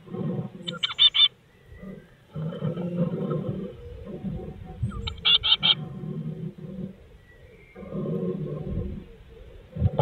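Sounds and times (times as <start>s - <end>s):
blue tit calling: 0.6s - 1.9s, 4.9s - 5.8s.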